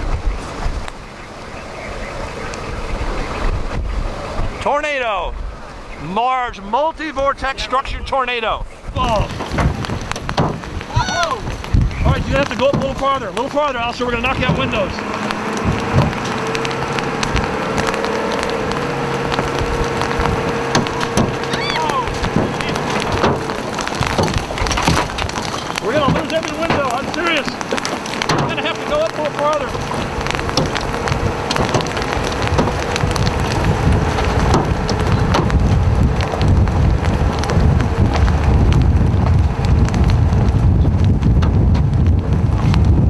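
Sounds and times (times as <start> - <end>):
low rumble: 0.0 - 43.0
rain hissing: 0.0 - 43.0
steady rushing noise: 0.0 - 43.0
hailstones striking a van: 8.9 - 43.0.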